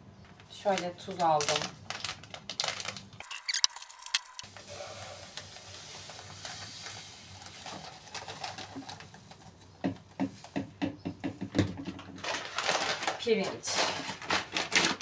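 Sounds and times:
taps and crinkles of plastic bag: 0:00.2 - 0:15.0
salt grains pouring hiss: 0:04.4 - 0:08.8.

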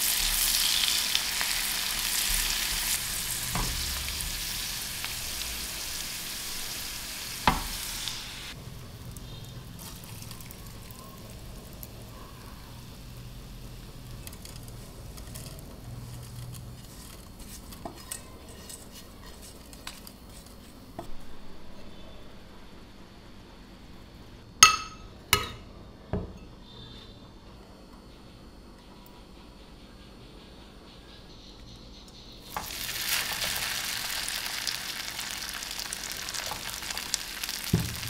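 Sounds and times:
garlic sizzling in butter: 0:00.0 - 0:20.7, 0:32.4 - 0:38.0
spatula stirring in a pan: 0:14.4 - 0:21.1.

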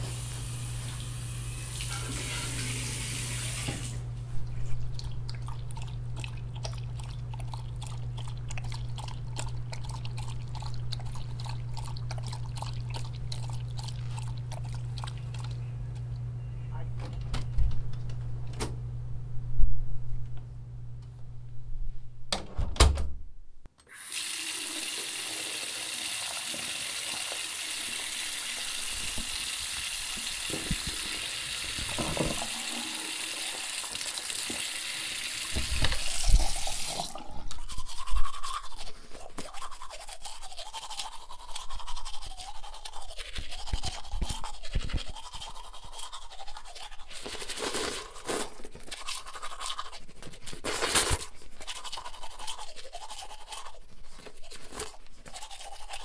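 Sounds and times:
water running: 0:00.0 - 0:04.1, 0:23.8 - 0:38.0.

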